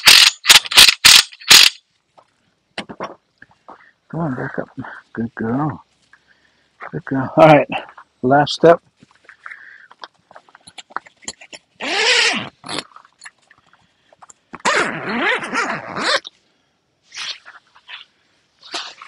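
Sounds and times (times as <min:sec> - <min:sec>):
small clicks and rustles: 0:08.8 - 0:11.8, 0:12.6 - 0:14.6.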